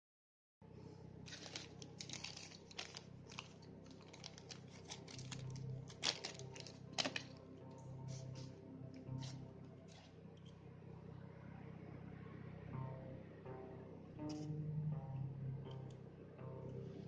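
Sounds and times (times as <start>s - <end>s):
faint low hum: 0.6s - 17.0s
plastic bag crinkling: 1.3s - 7.4s, 9.2s - 10.1s.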